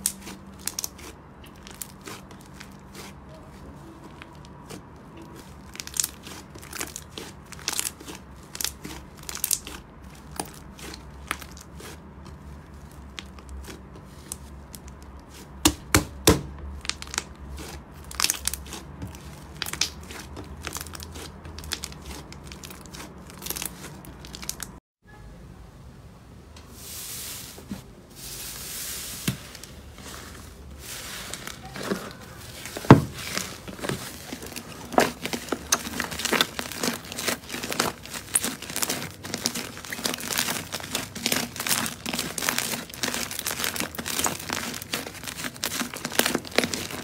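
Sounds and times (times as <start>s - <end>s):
slime crackling and popping: 0.0s - 3.2s, 4.1s - 24.8s, 31.3s - 47.0s
slime squishing with airy hiss: 26.6s - 47.0s.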